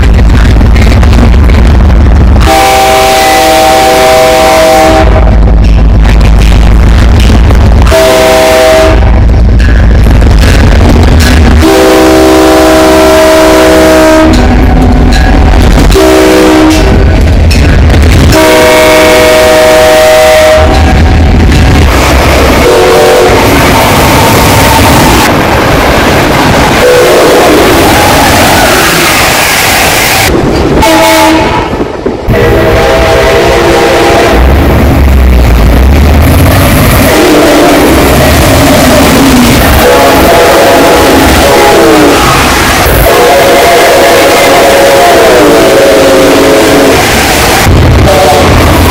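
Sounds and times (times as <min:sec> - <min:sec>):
heavy low rumble: 0:00.0 - 0:43.3, 0:45.7 - 0:48.9
locomotive air horn blasts: 0:02.4 - 0:05.4, 0:07.8 - 0:09.2, 0:11.6 - 0:14.7, 0:15.9 - 0:17.0, 0:18.2 - 0:21.1, 0:22.5 - 0:23.6, 0:26.8 - 0:28.1, 0:30.8 - 0:34.6, 0:37.0 - 0:38.0, 0:39.7 - 0:48.9.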